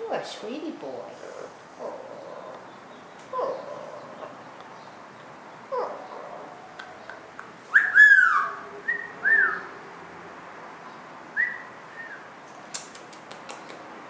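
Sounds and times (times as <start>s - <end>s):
whistles: 7.8s - 9.6s, 11.4s - 12.2s
parrot raspy call: 7.8s - 9.7s.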